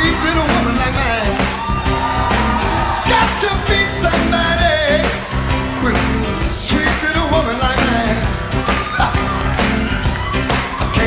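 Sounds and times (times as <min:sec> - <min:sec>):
man singing lead vocal: 0:00.0 - 0:01.6, 0:03.0 - 0:09.3, 0:10.7 - 0:11.0
live rock band playing: 0:00.0 - 0:11.0.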